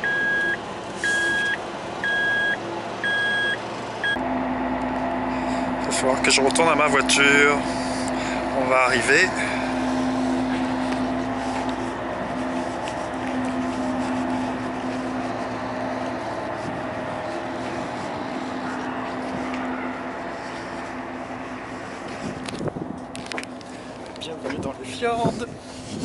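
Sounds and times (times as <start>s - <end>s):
ferry engines droning: 0.0s - 26.0s.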